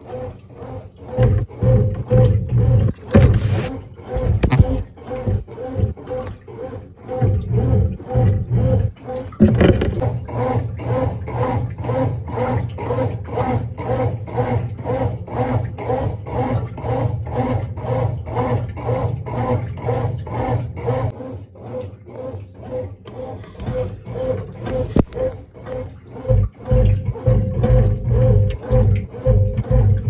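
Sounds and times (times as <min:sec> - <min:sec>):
washing machine agitating: 0:00.0 - 0:30.0
thump: 0:03.1 - 0:03.7, 0:09.4 - 0:10.0.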